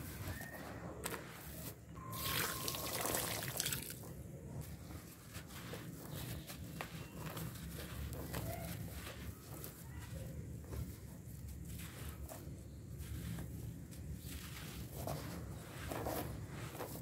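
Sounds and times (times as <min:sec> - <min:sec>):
water trickling and dripping: 0:02.1 - 0:04.0.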